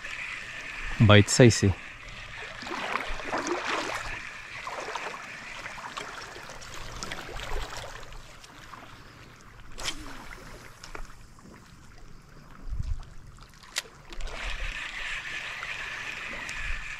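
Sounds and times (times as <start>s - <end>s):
small waves lapping over rocks: 0.0s - 12.5s.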